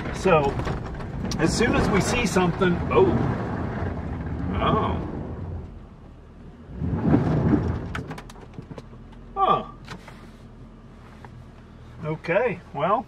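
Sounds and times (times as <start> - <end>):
mud pattering against truck: 0.0 - 5.9, 6.7 - 9.3.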